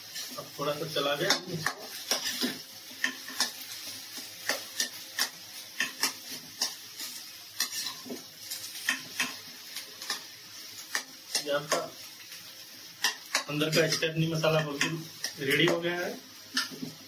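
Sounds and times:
faint sizzle in hot oil: 0.0s - 17.0s
metal spatula scraping a steel pan: 5.8s - 9.4s.

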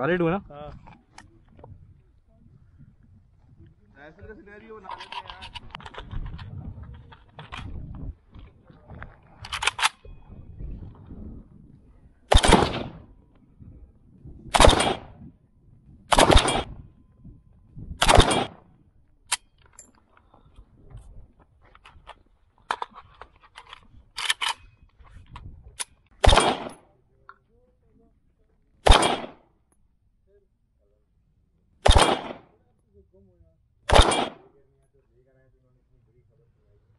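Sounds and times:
loud gunshots: 12.3s - 13.1s, 14.5s - 15.2s, 16.1s - 16.8s, 18.0s - 18.6s, 26.2s - 26.8s, 28.8s - 29.4s, 31.8s - 32.6s, 33.9s - 34.5s.

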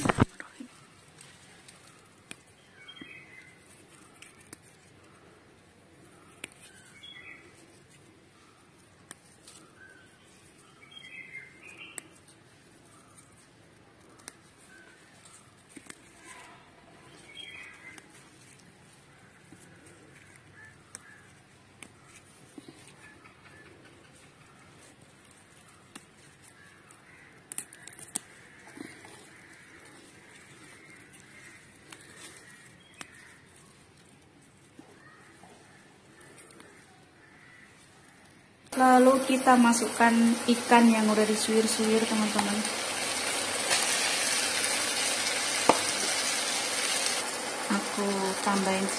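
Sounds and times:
small stems snapping: 0.0s - 4.8s, 6.3s - 7.2s, 14.0s - 16.4s, 17.1s - 22.9s, 24.9s - 34.8s, 41.5s - 48.9s
leaves rustling: 0.0s - 23.2s, 24.2s - 48.9s
light outdoor hiss: 0.0s - 48.9s
faint birds chirping: 0.1s - 43.6s.

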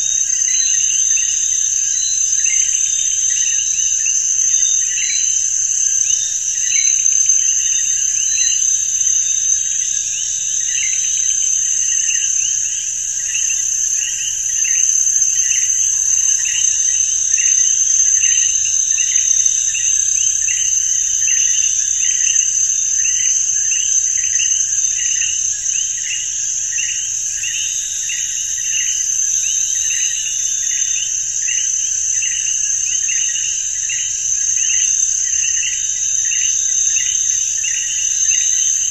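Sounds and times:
insect high-pitched trill: 0.0s - 38.9s
insect lower chirp: 0.0s - 38.9s.

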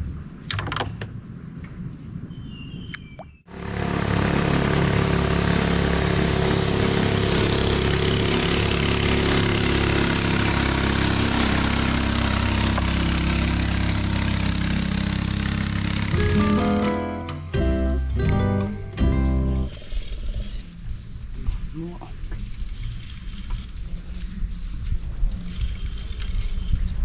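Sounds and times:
engine running steadily: 3.5s - 17.0s
plucked guitar music: 16.1s - 19.7s.

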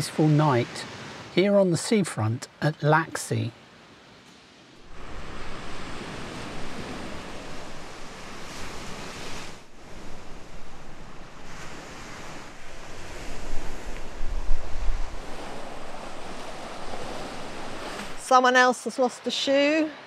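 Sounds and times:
surf breaking on shore: 4.4s - 20.0s
wind rumbling on microphone: 4.8s - 18.2s.

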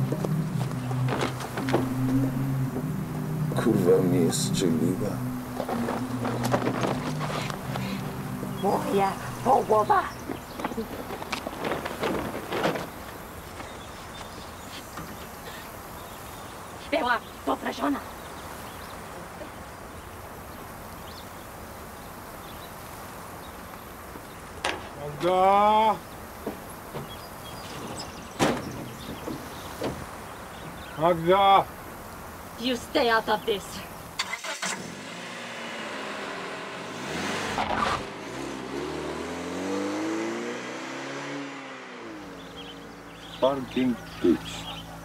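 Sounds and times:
car engine accelerating: 0.0s - 14.4s, 34.2s - 45.0s
outdoor background noise: 0.0s - 45.0s.

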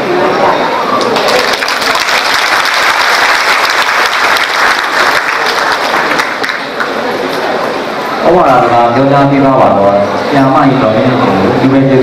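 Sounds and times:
audience applauding: 0.9s - 7.5s.

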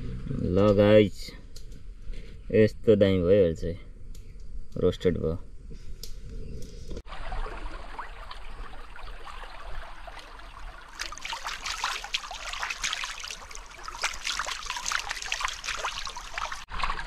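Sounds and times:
shallow stream trickling: 7.0s - 17.0s
hands splashing in water: 7.1s - 17.0s.

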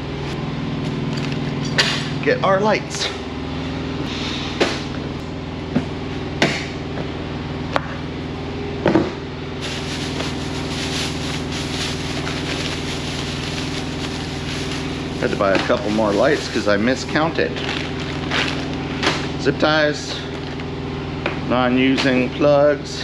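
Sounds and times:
low machine hum: 0.0s - 23.0s
plastic bag rustling: 9.6s - 19.0s.

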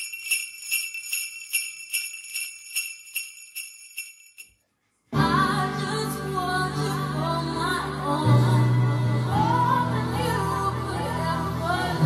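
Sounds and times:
jingle bells shaken: 0.0s - 4.6s
music with singing: 5.1s - 12.0s.

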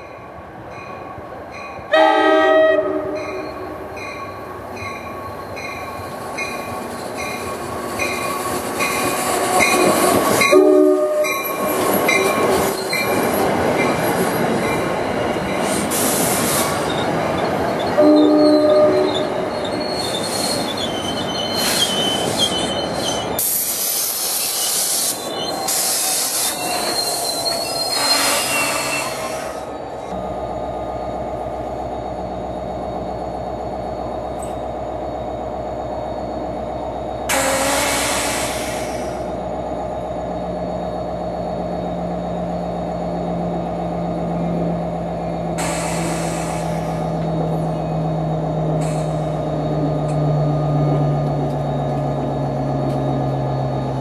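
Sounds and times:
train coaches rumbling past: 0.0s - 54.0s
train horn blasts: 1.9s - 3.5s, 9.7s - 11.4s, 18.0s - 19.3s, 28.0s - 29.2s, 37.3s - 38.5s
train bell ringing: 3.0s - 13.2s
wheel squeal: 11.4s - 14.4s, 15.5s - 29.6s.

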